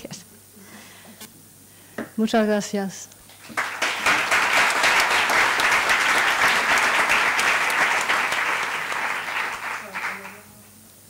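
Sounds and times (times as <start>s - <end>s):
audience applauding: 3.3s - 10.6s.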